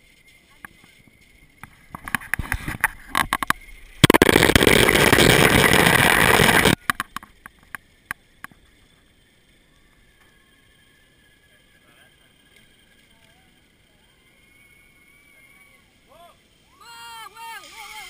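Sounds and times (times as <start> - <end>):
zip-line trolley whirring rattle: 0.0 - 18.0
sharp clicks: 2.0 - 8.6.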